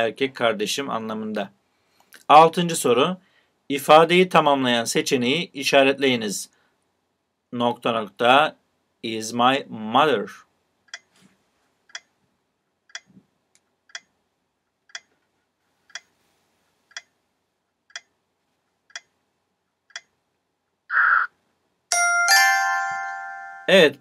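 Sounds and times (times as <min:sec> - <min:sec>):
bright bell-like chime: 0:21.9 - 0:24.0.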